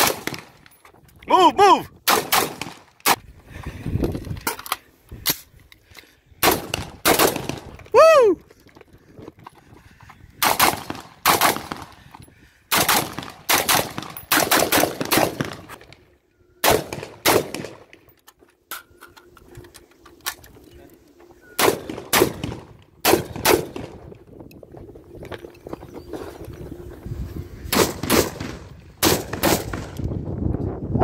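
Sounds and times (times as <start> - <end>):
rifles firing: 0.0 - 0.6, 2.1 - 3.2, 6.4 - 7.8, 10.4 - 12.0, 12.7 - 16.0, 16.6 - 18.0, 21.6 - 24.1, 27.7 - 30.0.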